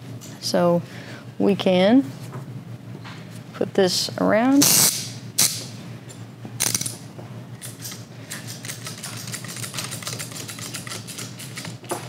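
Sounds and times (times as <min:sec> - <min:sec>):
cable cutter ratchet clicking: 0:06.6 - 0:07.0.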